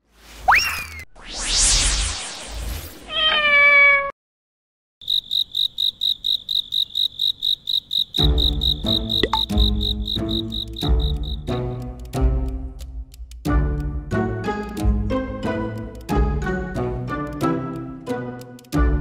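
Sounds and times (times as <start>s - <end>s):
cricket chirping: 5.0s - 11.8s
background music with a beat: 8.2s - 19.0s.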